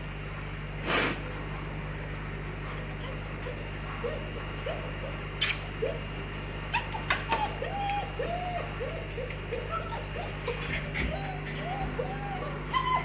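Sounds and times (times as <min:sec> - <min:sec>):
dogs whimpering: 0:02.7 - 0:13.0.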